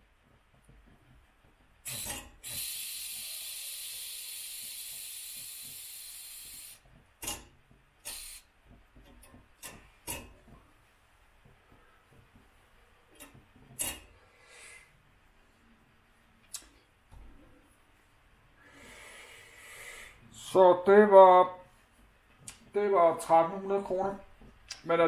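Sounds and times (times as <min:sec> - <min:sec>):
steam engine boiler venting steam: 0:00.0 - 0:10.7
steam puffs: 0:01.8 - 0:06.9, 0:08.0 - 0:08.5
steam hissing: 0:01.8 - 0:07.4, 0:08.0 - 0:08.5.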